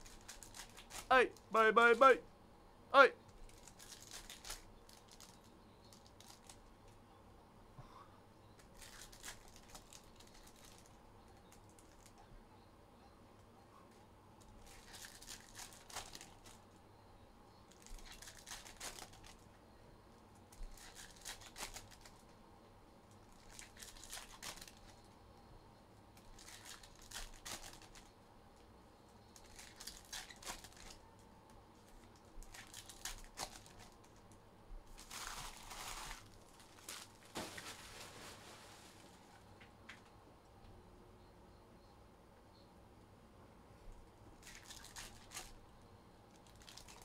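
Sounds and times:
card pack wrapper tearing and crinkling: 0.0 - 1.1, 3.5 - 6.6, 8.7 - 10.9, 14.6 - 16.6, 17.7 - 19.4, 20.6 - 22.2, 23.4 - 24.9, 26.2 - 28.1, 29.4 - 31.0, 32.0 - 34.0, 34.9 - 37.8, 44.4 - 45.6, 46.4 - 47.0.

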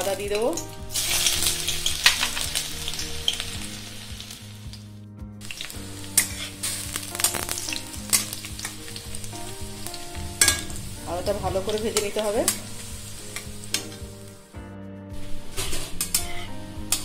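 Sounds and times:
ginger sizzling in hot oil: 0.0 - 14.6
metal spatula scraping pan: 6.1 - 6.7, 10.4 - 14.0, 15.6 - 17.0.

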